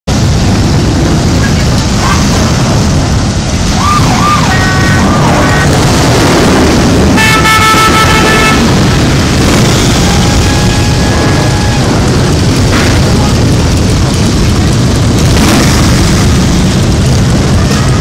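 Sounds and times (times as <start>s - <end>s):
motorcycles rumbling: 0.1s - 18.0s
vehicle horns honking: 7.1s - 9.0s.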